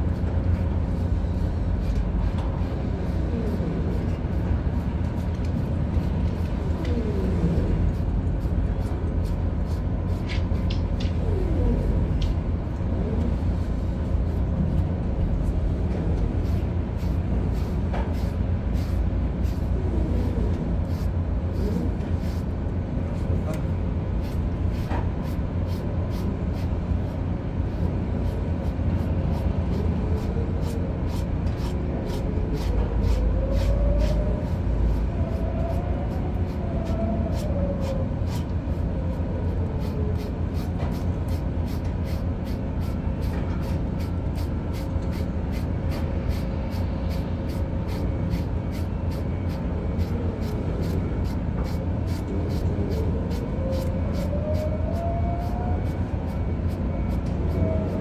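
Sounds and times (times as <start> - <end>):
faint hum: 0.0 - 58.0
ship machinery drone: 0.0 - 58.0
brush scratching through dog fur: 28.2 - 38.5, 39.7 - 58.0.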